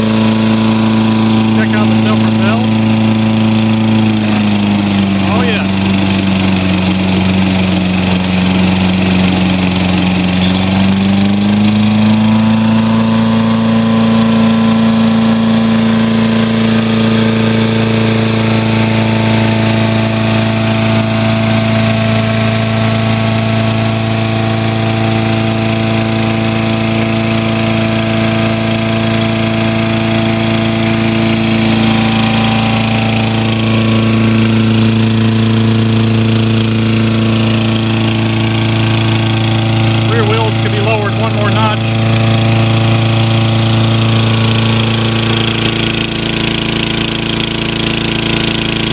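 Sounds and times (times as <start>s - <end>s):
lawn mower engine running: 0.0s - 48.9s.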